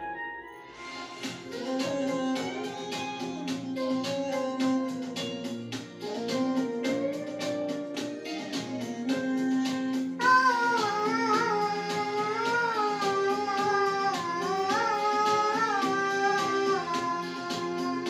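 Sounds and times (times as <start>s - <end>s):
instrumental accompaniment: 0.0s - 18.0s
girl singing: 9.2s - 18.0s.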